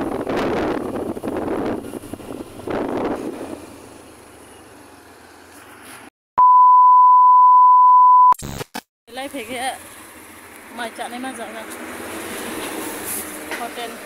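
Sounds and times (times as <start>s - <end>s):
wind and road noise: 0.0s - 6.1s, 9.2s - 14.0s
test-pattern beep: 6.4s - 8.6s
glitchy static bursts: 8.2s - 8.9s.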